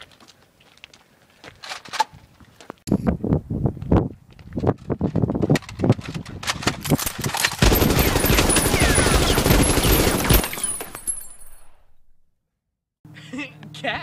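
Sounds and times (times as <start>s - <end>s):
gunshots: 7.0s - 11.2s
rapid machine-gun fire: 7.1s - 10.6s.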